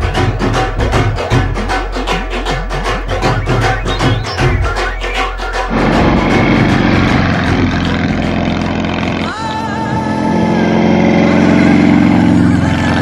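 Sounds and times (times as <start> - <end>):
percussive music: 0.0 - 10.0
motorcycle engine running: 2.8 - 13.0
wavering higher whine: 3.1 - 12.7.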